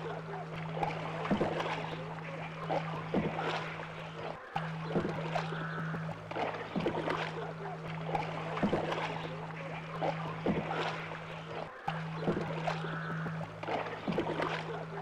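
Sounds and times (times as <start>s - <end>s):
steady low hum: 0.0s - 15.0s
paddle splashing in water: 6.3s - 11.6s.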